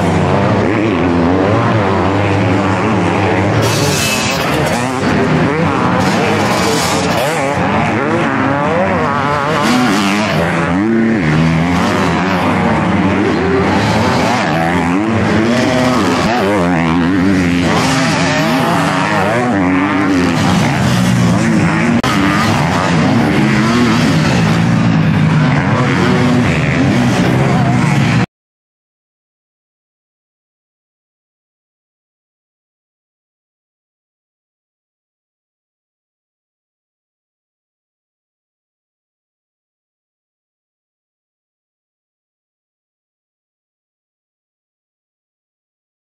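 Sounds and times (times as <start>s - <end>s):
motocross bike engines revving: 0.0s - 28.3s.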